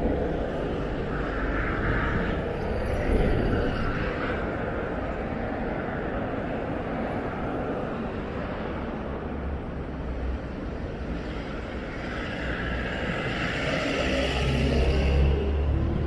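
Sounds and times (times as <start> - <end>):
road vehicle passing: 11.8 - 16.0.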